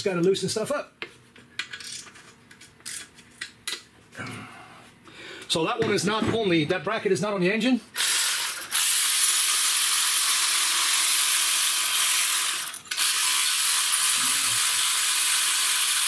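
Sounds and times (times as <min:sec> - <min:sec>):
air ratchet hissing and ratcheting: 0:08.0 - 0:16.0.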